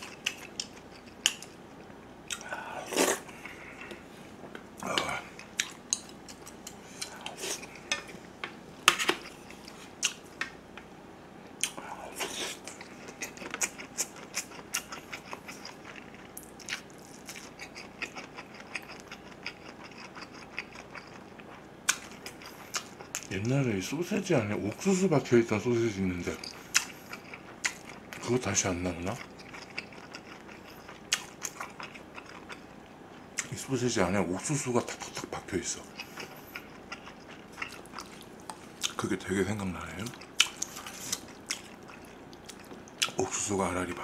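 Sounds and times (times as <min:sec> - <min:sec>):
wet chewing: 0:26.3 - 0:28.3, 0:35.9 - 0:39.1, 0:40.0 - 0:43.2.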